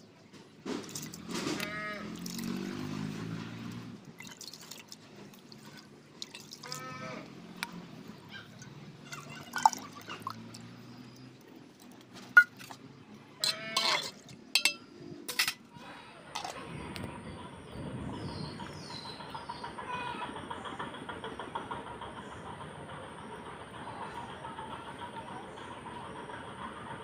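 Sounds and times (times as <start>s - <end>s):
steady outdoor hiss: 0.0s - 27.0s
sharp clinks and splashes: 0.8s - 6.9s, 7.5s - 15.7s.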